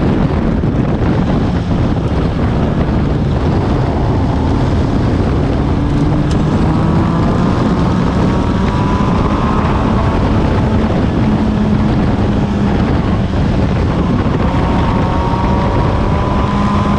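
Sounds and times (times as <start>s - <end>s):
race car engine: 0.0s - 16.9s
wind noise on microphone: 0.0s - 16.9s.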